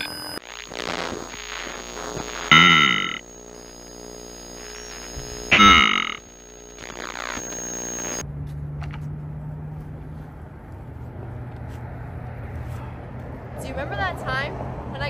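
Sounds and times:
bending electronic burst: 0.0 - 8.2
outdoor low hum: 0.0 - 12.4.

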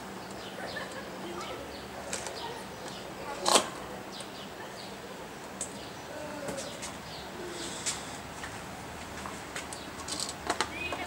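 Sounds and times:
faint bird cooing: 5.9 - 8.1.

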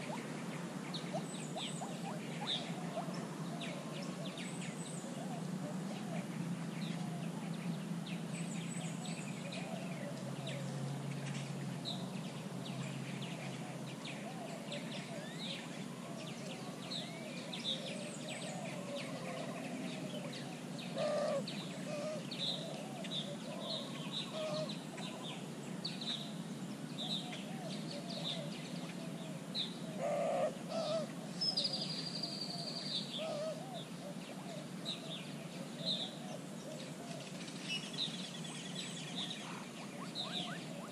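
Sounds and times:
lower bird calls: 0.0 - 10.7, 12.8 - 26.2, 27.0 - 40.9
drawn-out high bird whistle: 39.0 - 40.9
high bird chirps: 39.8 - 40.8.

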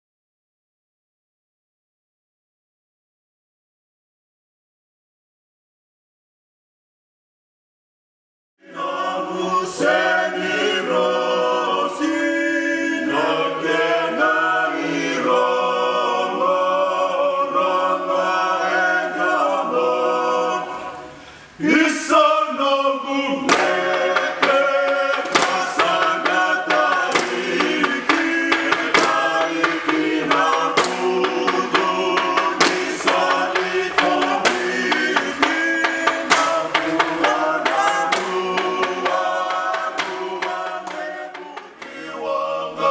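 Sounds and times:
group singing a cappella chant: 8.6 - 42.9
sharp evenly spaced beats: 23.4 - 42.9.

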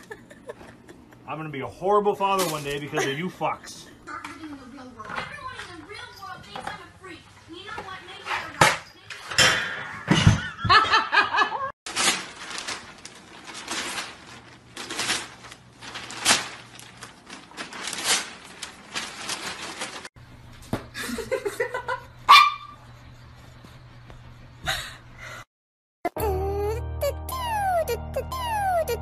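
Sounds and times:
dog barking: 22.3 - 22.8.

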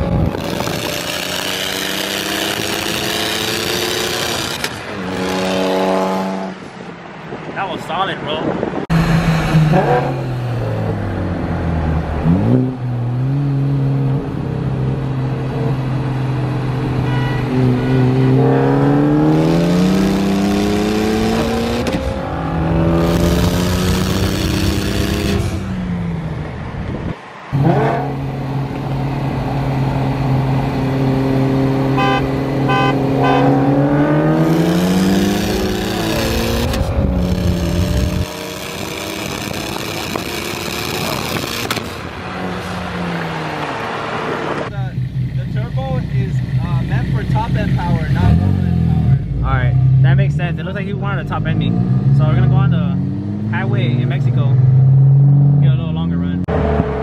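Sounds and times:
car engines accelerating: 0.0 - 57.0.

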